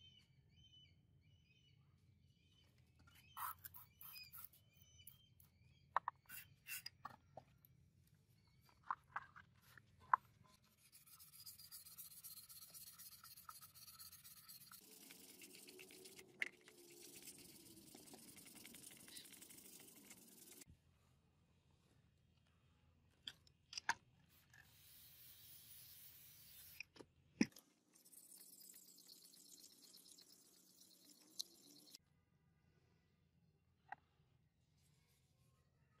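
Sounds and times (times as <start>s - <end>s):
sandpaper rasping on wood: 10.7s - 16.2s.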